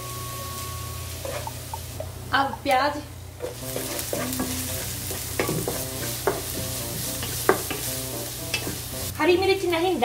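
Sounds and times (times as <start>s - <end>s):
onion sizzling in hot oil: 0.0s - 10.0s
wooden spatula scraping pan: 3.4s - 8.8s.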